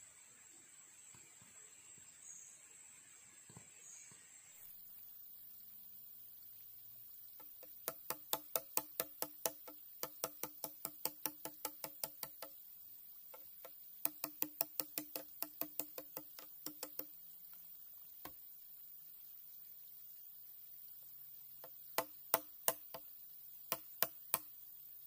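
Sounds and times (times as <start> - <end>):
hollow knocks on bamboo: 7.4 - 12.6, 13.3 - 17.6, 21.6 - 23.1, 23.7 - 24.5.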